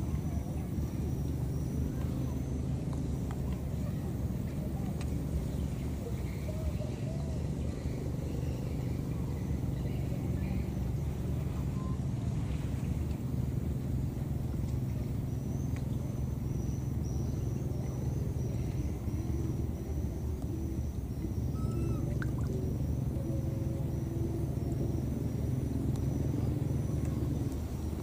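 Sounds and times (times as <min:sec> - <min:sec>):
engine rumbling: 0:00.0 - 0:28.0
faint high tone: 0:17.2 - 0:25.5.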